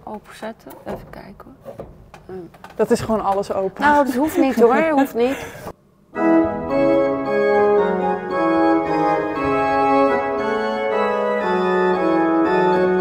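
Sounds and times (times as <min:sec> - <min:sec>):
pipe organ playing chords: 0:06.1 - 0:13.0.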